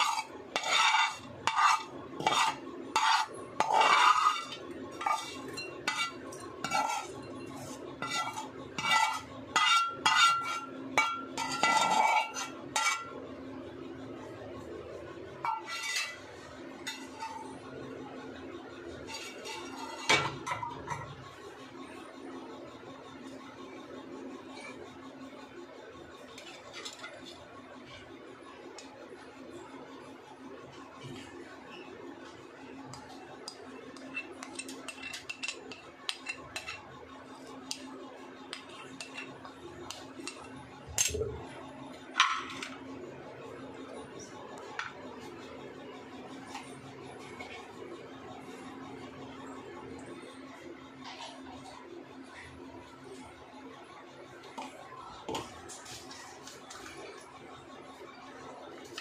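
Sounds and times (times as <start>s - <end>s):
dishes and utensils clinking: 0.0s - 13.2s, 15.4s - 17.6s, 18.8s - 21.3s, 26.4s - 28.0s, 32.9s - 36.9s, 37.7s - 42.9s
plastic spoon scraping a plate: 0.0s - 13.2s, 15.4s - 17.6s, 19.0s - 21.1s.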